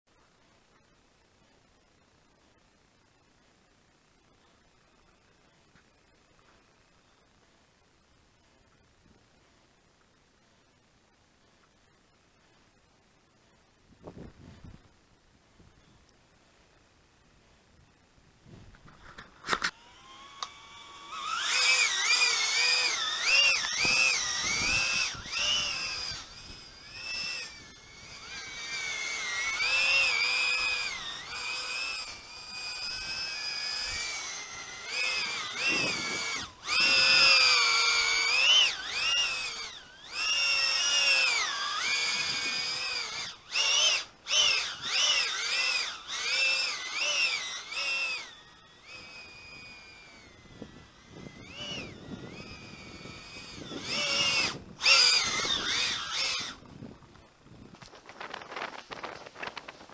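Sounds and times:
quadcopter motors whining: 18.5s - 59.9s.

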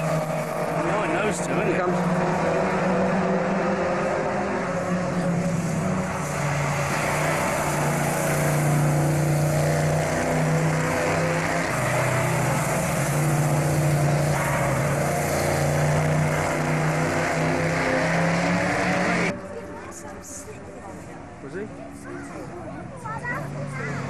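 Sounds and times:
racing car engine running hard: 0.0s - 19.7s
constant rushing noise: 0.0s - 24.0s.

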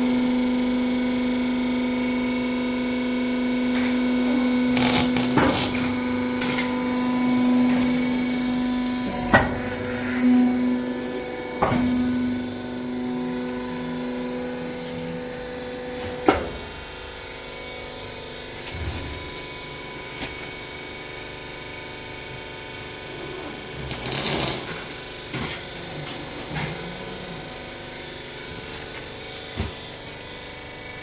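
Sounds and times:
baler motor humming: 3.7s - 20.2s, 24.8s - 29.4s.

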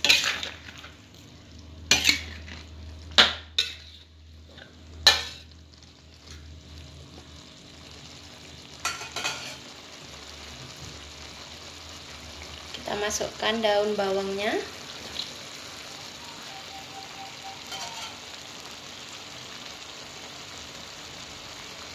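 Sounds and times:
spatula scraping a wok: 0.0s - 1.0s, 1.9s - 5.6s, 17.6s - 18.2s
food sizzling: 0.0s - 21.9s.

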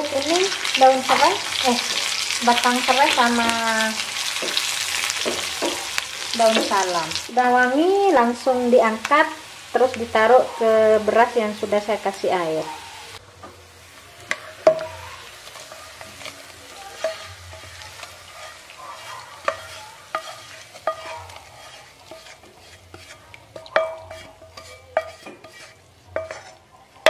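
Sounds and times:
faint sizzling: 0.0s - 27.0s
spoon knocking on frying pan: 4.3s - 7.0s, 14.2s - 16.2s, 19.4s - 26.6s.

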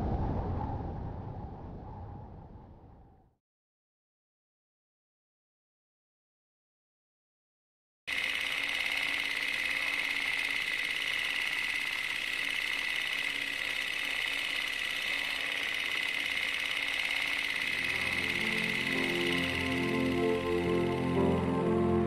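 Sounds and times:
film projector whirring and clattering: 8.1s - 21.6s.

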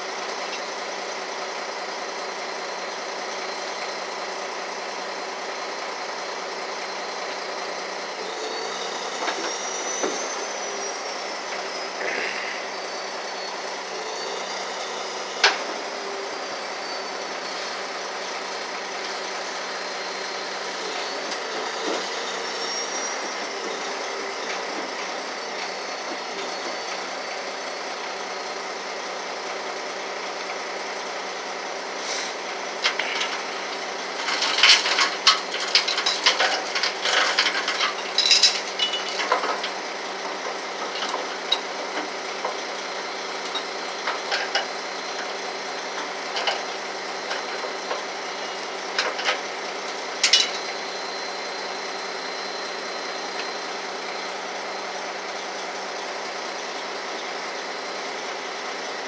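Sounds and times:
truck engine idling: 0.0s - 59.0s
chains clanking on pavement: 0.1s - 1.0s, 32.8s - 50.9s.

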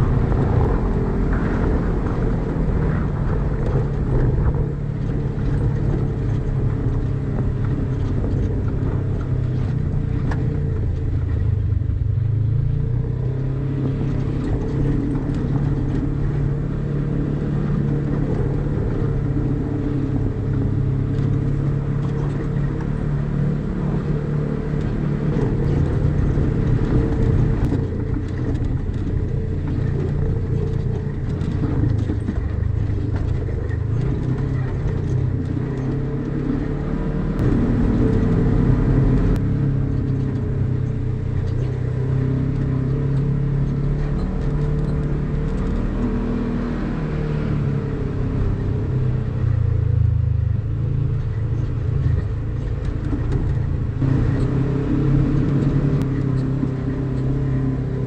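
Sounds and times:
clicks and knocks from rough ground: 0.0s - 12.1s, 20.5s - 47.7s, 51.0s - 57.9s
vehicle engine running: 0.0s - 58.0s.

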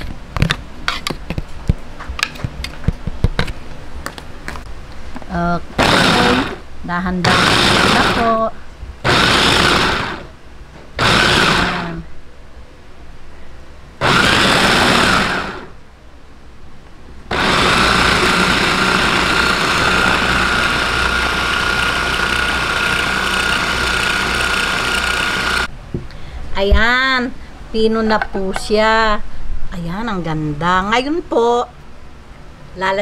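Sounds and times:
food processor grinding: 5.8s - 6.6s, 7.2s - 8.3s, 9.0s - 10.3s, 11.0s - 12.0s, 14.0s - 15.7s, 17.3s - 25.7s.

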